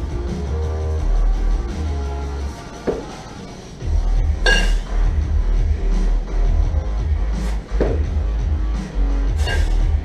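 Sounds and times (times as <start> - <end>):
background music: 0.0 - 10.0
kettlebells clinking together: 4.5 - 4.9.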